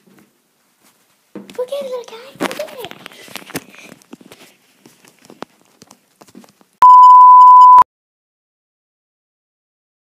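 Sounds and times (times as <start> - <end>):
soft footsteps: 0.0 - 1.6
steady single-pitch test tone beep: 6.8 - 7.8.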